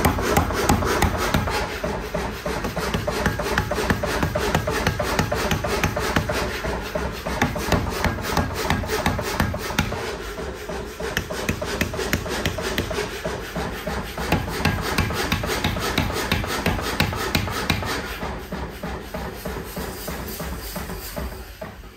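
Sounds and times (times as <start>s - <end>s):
power hammer pounding hot steel: 0.0s - 21.9s.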